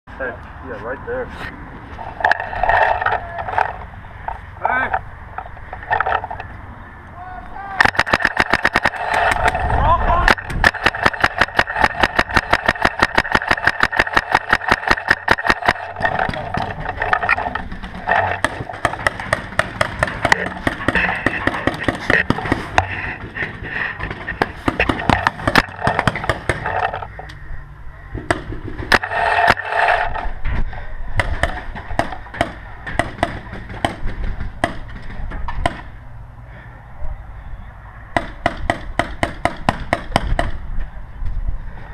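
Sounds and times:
paintball hits cracking: 7.8 - 9.6, 10.2 - 22.6
paintball markers firing: 7.8 - 23.0, 24.3 - 27.1, 31.2 - 35.9.

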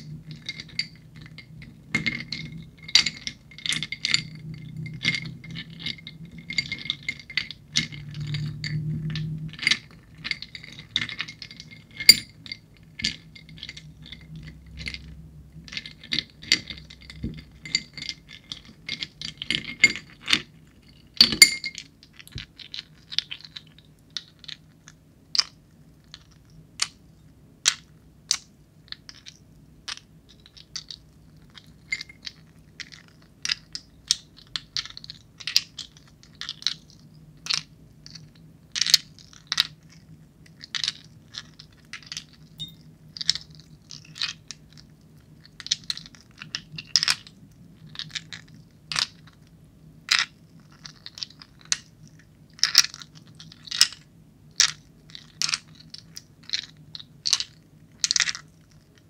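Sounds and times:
ice cubes clinking: 0.0 - 24.6.

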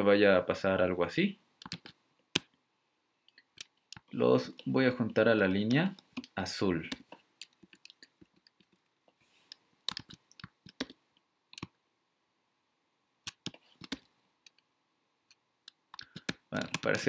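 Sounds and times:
computer mouse and keyboard clicks: 1.6 - 2.6, 3.3 - 4.1, 5.9 - 11.8, 13.3 - 14.6, 15.3 - 17.0.

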